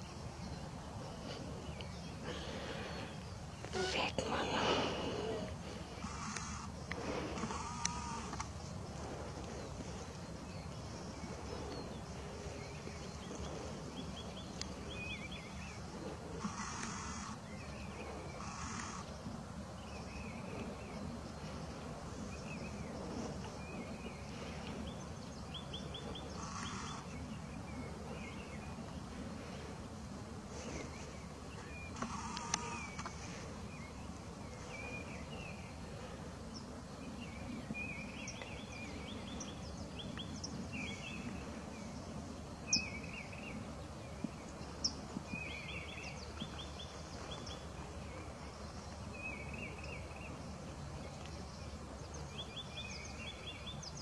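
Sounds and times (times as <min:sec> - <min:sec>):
sharp clicks: 0:32.0 - 0:33.2.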